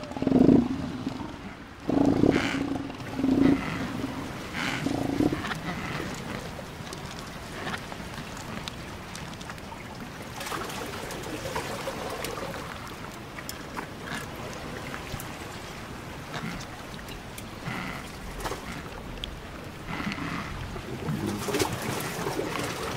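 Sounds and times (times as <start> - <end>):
water washing: 0.0 - 22.9
floating ice clicking and crackling: 2.0 - 15.6.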